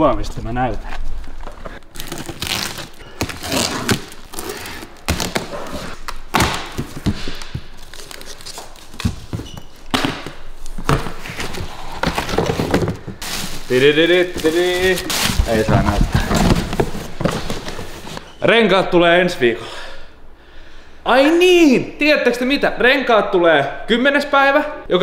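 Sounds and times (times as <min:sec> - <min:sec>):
cardboard crinkling: 0:01.5 - 0:09.9
cardboard boxes thudding: 0:08.9 - 0:13.7, 0:14.7 - 0:18.2.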